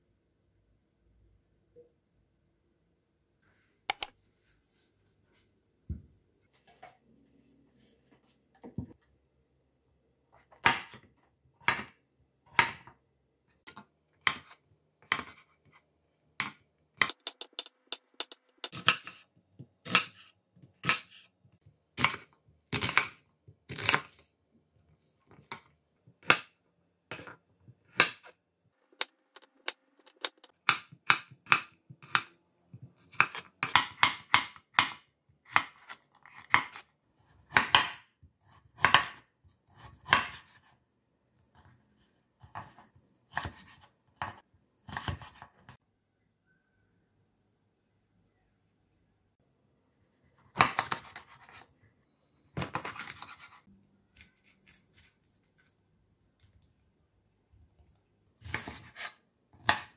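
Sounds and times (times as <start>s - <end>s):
knife chopping on wooden board: 33.1s - 36.8s, 37.5s - 38.0s, 38.8s - 39.2s.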